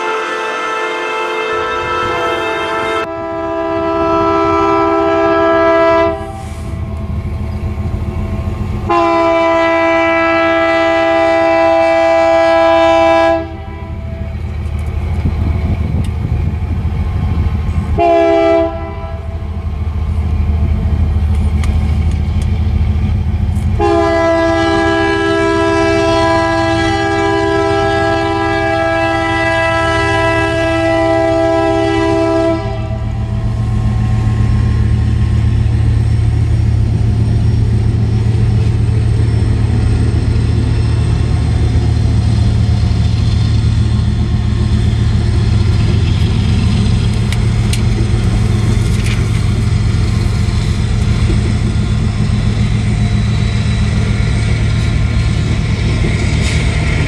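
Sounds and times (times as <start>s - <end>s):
locomotive air horn blasts: 0.0s - 6.8s, 8.9s - 14.4s, 17.9s - 19.4s, 23.8s - 34.9s
train low rumble: 0.0s - 57.0s.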